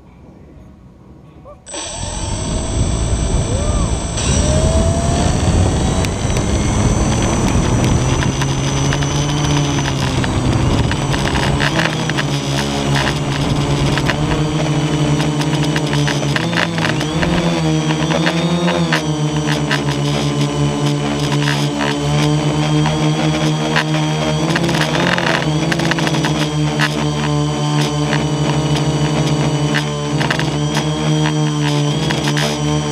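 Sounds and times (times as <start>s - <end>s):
drone motors buzzing: 1.7s - 32.9s.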